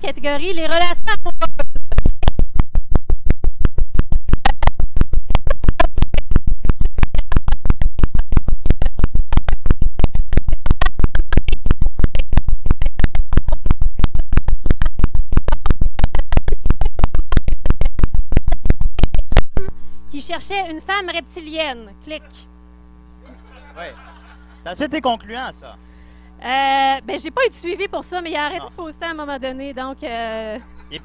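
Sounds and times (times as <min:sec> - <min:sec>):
regular electrical clicking: 0:00.4 - 0:21.8.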